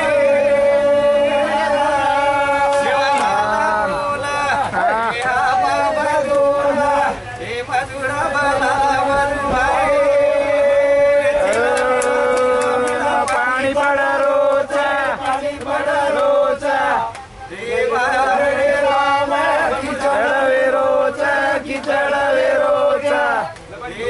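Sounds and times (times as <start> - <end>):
men singing in chanting style: 0.0 - 24.0
hand claps: 11.4 - 13.4, 17.1 - 17.3.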